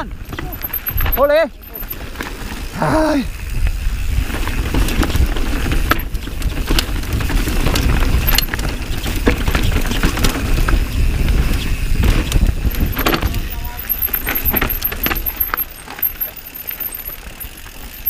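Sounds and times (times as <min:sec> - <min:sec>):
bike chain and frame rattling: 0:00.0 - 0:18.0
tyres rumbling on rough trail: 0:00.0 - 0:18.0
wind on microphone: 0:03.4 - 0:15.2.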